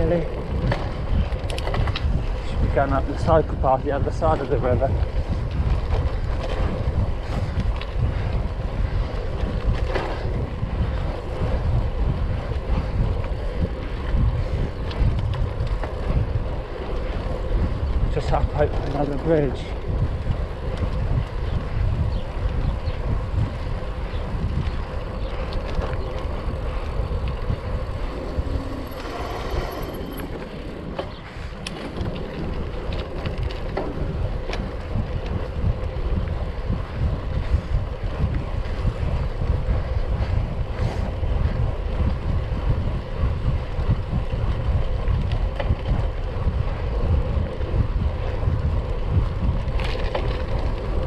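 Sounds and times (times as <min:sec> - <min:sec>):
wind rushing over microphone: 0:00.0 - 0:51.0
tyres rolling rumble: 0:22.7 - 0:41.0.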